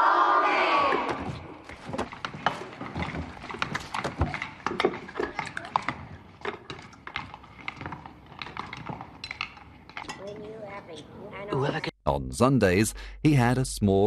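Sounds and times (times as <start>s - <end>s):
spoons clattering in bowls: 1.7s - 10.6s.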